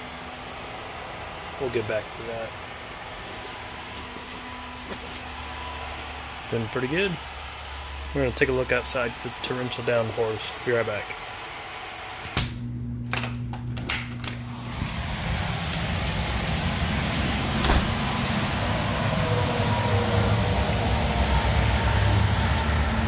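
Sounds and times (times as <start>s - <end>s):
low steady hum: 12.3s - 23.0s
heavy rain pouring: 14.5s - 23.0s.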